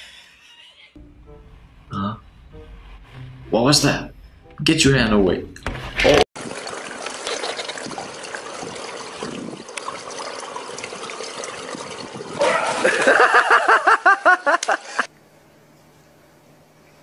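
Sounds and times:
pool water splashing and lapping: 0:06.4 - 0:15.1.

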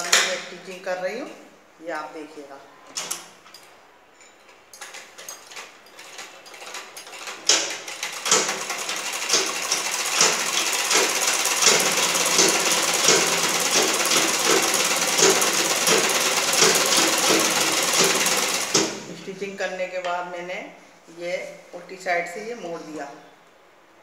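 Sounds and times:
sewing machine stitching: 0:05.2 - 0:19.1.

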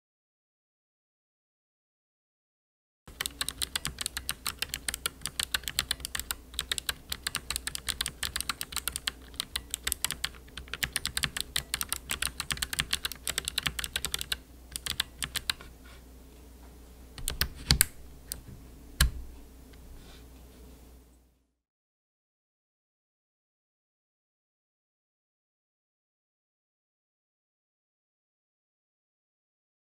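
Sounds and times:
clicky mechanical keyboard typing: 0:03.1 - 0:15.7, 0:17.2 - 0:19.2.

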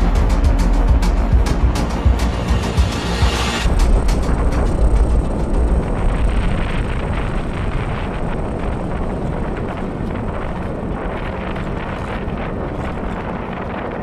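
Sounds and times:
deep rumble: 0:00.0 - 0:14.0
wind buffeting microphone: 0:03.5 - 0:14.0.

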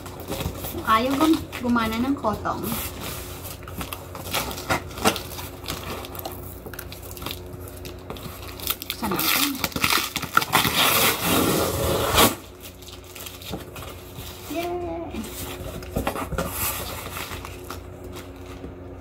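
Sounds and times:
cardboard crinkling and scraping: 0:00.0 - 0:18.8
packing tape peeling and tearing: 0:02.6 - 0:14.8.

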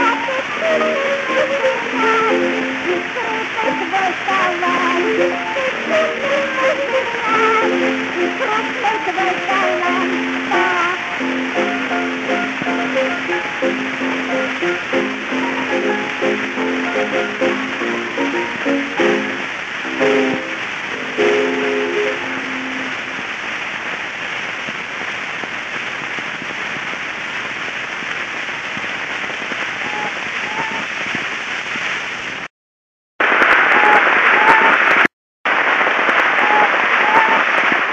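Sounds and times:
old gramophone song: 0:00.0 - 0:23.6, 0:35.6 - 0:37.9
record surface hiss and crackle: 0:00.0 - 0:32.5, 0:33.2 - 0:37.9.

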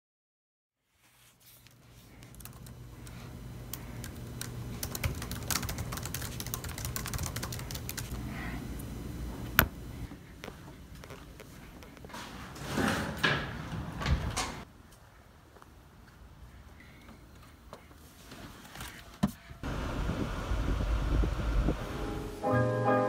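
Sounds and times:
low steady hum: 0:01.0 - 0:12.6
fingers typing on keyboard: 0:02.2 - 0:08.1.

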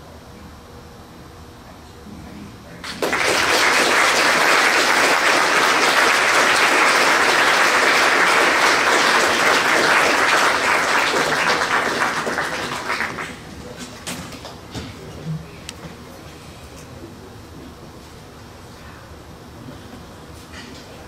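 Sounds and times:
audience applauding: 0:02.8 - 0:13.5.

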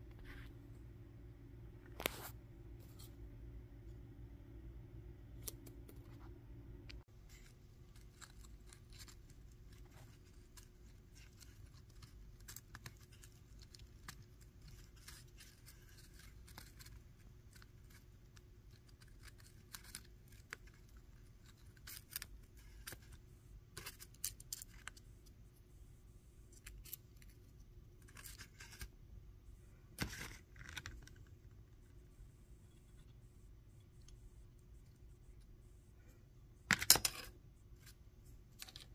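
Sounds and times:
steady low hum: 0:00.0 - 0:38.9
paper being handled and cut: 0:07.2 - 0:23.2.

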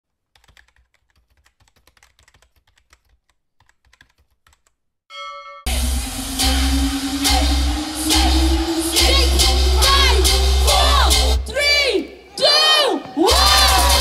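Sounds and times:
bell-like ding: 0:05.1 - 0:05.8
loud music: 0:05.7 - 0:12.5, 0:13.2 - 0:14.0.

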